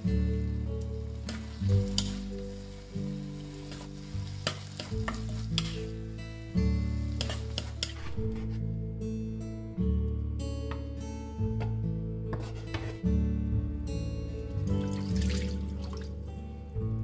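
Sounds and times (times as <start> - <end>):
food sizzling in a pan: 0.0 - 8.4
background music: 0.0 - 17.0
spatula scraping a pan: 3.7 - 5.9, 7.1 - 8.6, 12.3 - 13.0.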